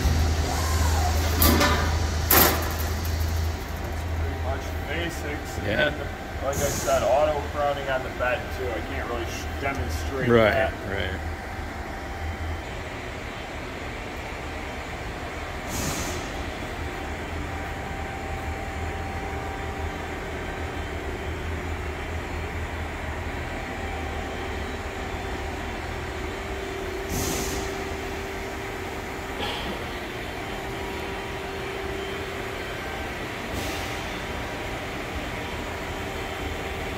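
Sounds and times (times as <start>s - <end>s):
machine-shop hum: 0.0s - 36.9s
air hiss bursts: 15.6s - 16.5s, 27.0s - 28.0s.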